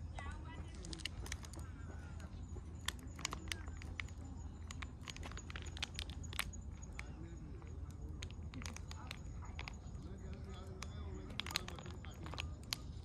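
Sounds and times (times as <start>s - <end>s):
plastic pouch crinkling: 0.7s - 1.6s, 2.8s - 7.1s, 8.2s - 13.0s.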